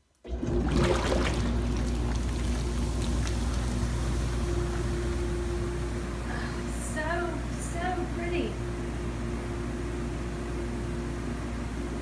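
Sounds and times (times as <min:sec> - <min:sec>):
bathwater churning: 0:00.2 - 0:06.2
bathtub jet pump humming: 0:00.2 - 0:12.0.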